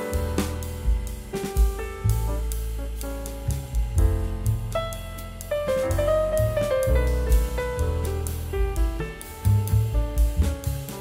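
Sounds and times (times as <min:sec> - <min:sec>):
background music: 0:00.0 - 0:11.0
drum hits: 0:00.0 - 0:11.0
low bass line: 0:00.0 - 0:11.0.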